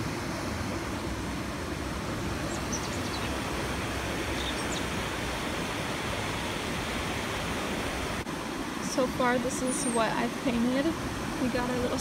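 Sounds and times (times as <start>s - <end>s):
stream rushing over rocks: 0.0s - 12.0s
faint bird chirps: 2.5s - 3.3s.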